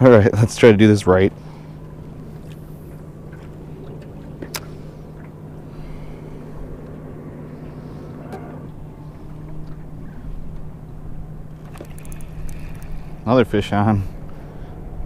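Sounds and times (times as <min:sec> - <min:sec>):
electric motor humming: 0:01.3 - 0:13.4
sharp clicks: 0:11.6 - 0:13.0.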